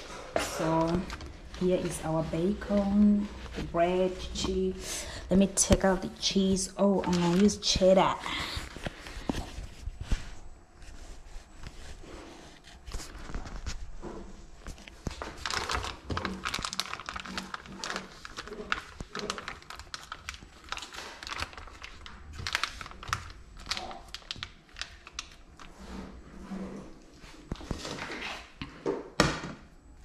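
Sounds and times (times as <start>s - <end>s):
plastic wrapping crinkling and tearing: 6.4s - 10.2s, 14.6s - 25.8s.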